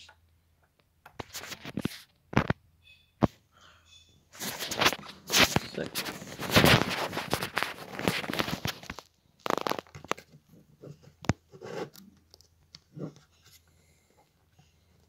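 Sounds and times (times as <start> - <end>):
handling crackling and rustling: 4.4 - 15.0.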